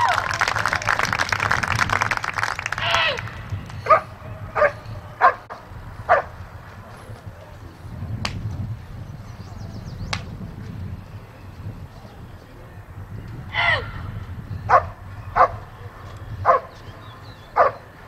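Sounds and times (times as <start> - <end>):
dog barking: 3.8 - 5.5, 6.1 - 6.3, 14.7 - 15.6, 16.4 - 16.8, 17.5 - 17.8.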